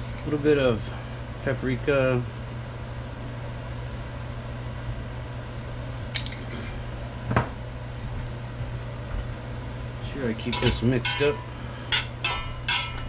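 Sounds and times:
steady low hum: 0:00.0 - 0:13.0
light kitchen clinks: 0:10.4 - 0:13.0.

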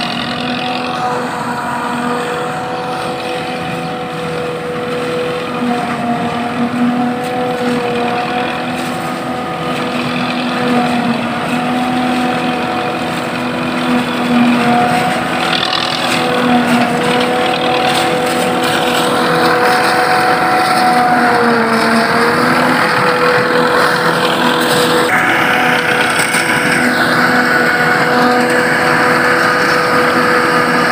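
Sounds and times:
constant machine hum: 0:00.0 - 0:30.9
engine drone: 0:00.0 - 0:30.9.

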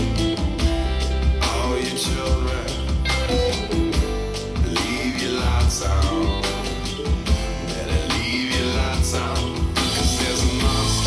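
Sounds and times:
guitar-led song over loudspeakers: 0:00.0 - 0:11.0
pulsing bass line: 0:00.0 - 0:11.0.

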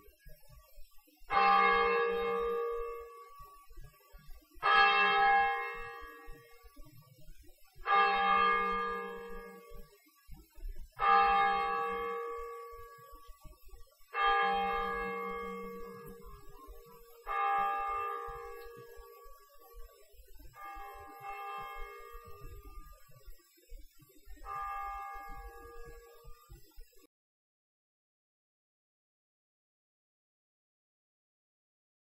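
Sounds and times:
church bell tolling: 0:01.3 - 0:03.6, 0:04.6 - 0:06.6, 0:07.8 - 0:09.8, 0:11.0 - 0:13.4, 0:14.1 - 0:19.9, 0:20.6 - 0:22.9, 0:24.4 - 0:26.3.

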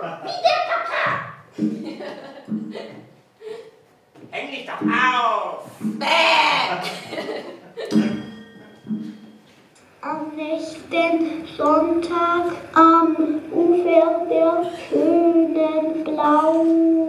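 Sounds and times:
high voice singing: 0:05.9 - 0:06.8, 0:10.0 - 0:17.0.

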